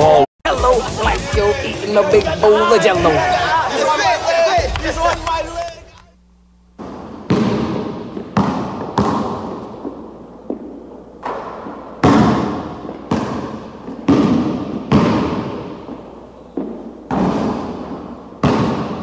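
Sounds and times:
basketball bouncing with echo: 6.8s - 19.0s.

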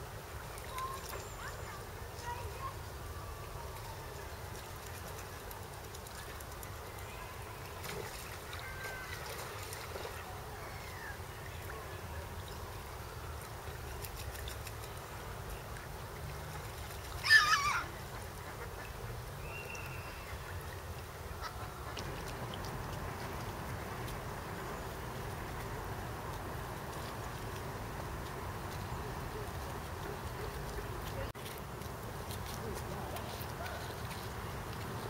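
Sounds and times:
low background noise: 0.0s - 35.0s
ducks quacking: 21.3s - 22.2s.

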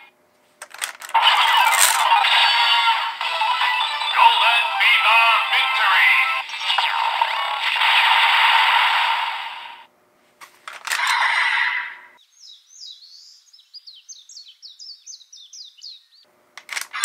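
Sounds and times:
toy belt electronic music: 0.7s - 8.0s
sparrows chirping: 12.2s - 16.3s
sharp clicks: 16.6s - 17.0s.

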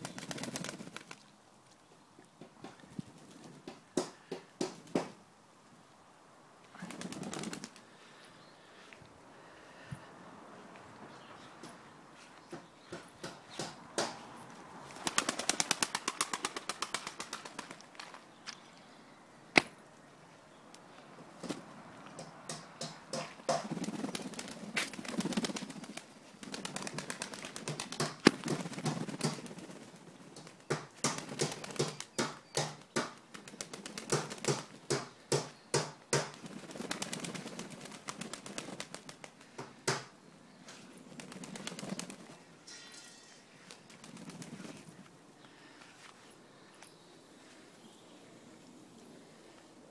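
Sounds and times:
wings flapping: 0.0s - 1.3s, 6.7s - 7.8s, 14.9s - 18.2s, 23.5s - 34.9s, 36.3s - 39.6s, 41.1s - 42.4s, 43.7s - 44.9s.

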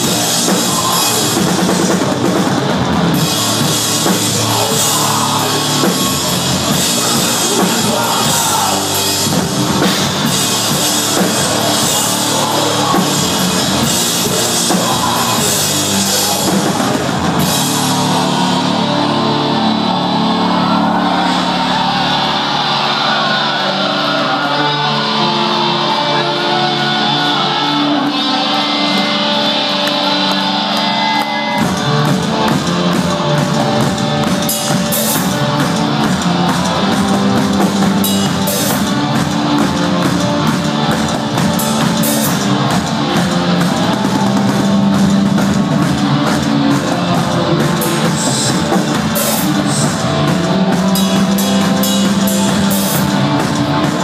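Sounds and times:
distorted electric guitars: 0.0s - 54.0s
drum kit pounding: 0.0s - 54.0s.

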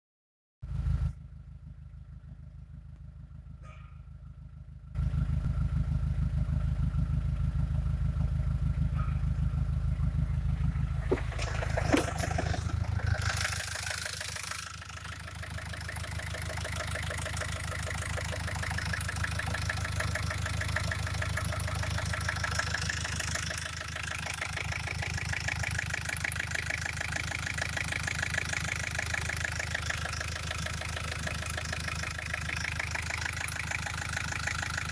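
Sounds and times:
diesel engine idling: 0.6s - 34.9s
clunks: 3.0s - 4.2s, 8.1s - 34.9s.

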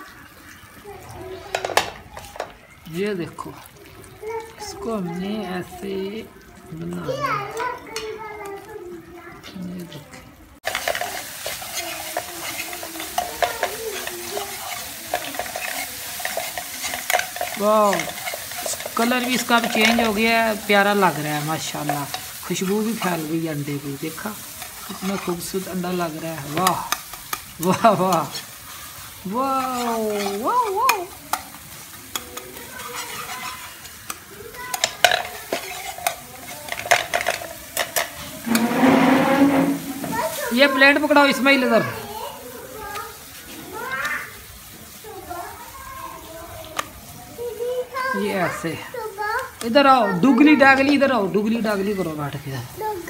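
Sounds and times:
eggs sizzling in oil: 0.0s - 53.0s
whisk clicking against pan: 10.6s - 23.3s, 29.6s - 38.2s
whisk scraping a pan: 10.6s - 45.0s.

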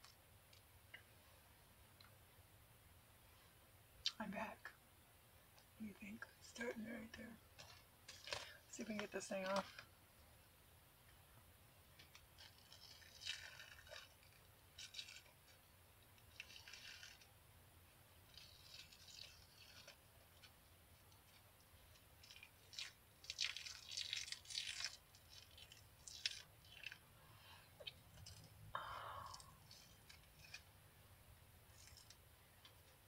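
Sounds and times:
face mask film peeling crackles: 7.5s - 9.9s, 12.0s - 17.4s, 18.2s - 27.0s, 29.3s - 30.7s, 31.7s - 32.8s.

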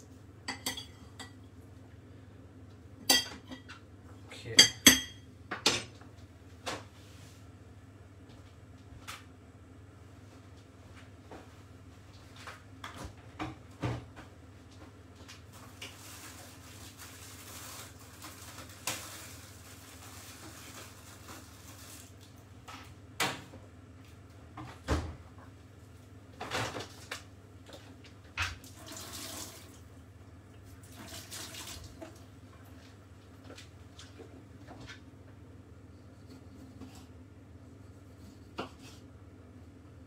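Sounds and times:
dishes and utensils clattering: 0.5s - 1.4s, 3.0s - 3.8s, 4.6s - 6.0s.

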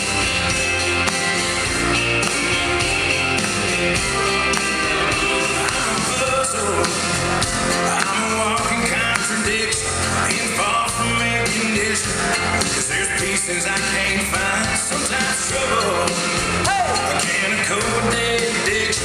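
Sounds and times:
up-tempo dance song with singing: 1.7s - 19.0s.

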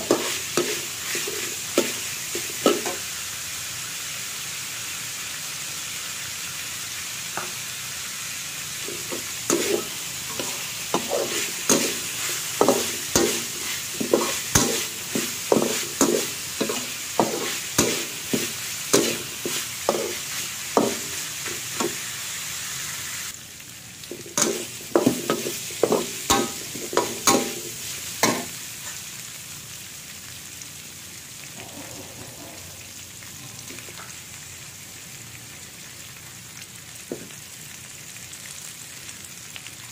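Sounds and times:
spatula scraping metal wok: 0.0s - 3.0s, 8.8s - 22.0s
food sizzling in wok: 0.0s - 39.9s.

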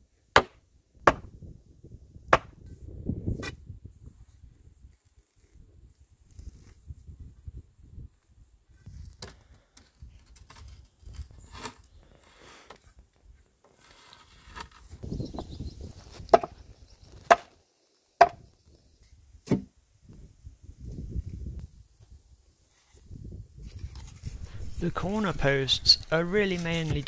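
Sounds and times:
sharp chopping strikes: 0.4s - 1.3s, 2.3s - 2.5s, 17.2s - 17.5s, 18.2s - 18.4s
digging tool scraping stony soil: 10.1s - 12.9s, 13.6s - 15.0s, 22.7s - 27.0s.

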